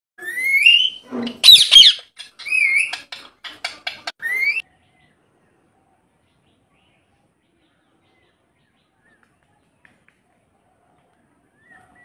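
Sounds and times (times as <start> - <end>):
parakeet whistles and squawks: 0.2 - 4.6.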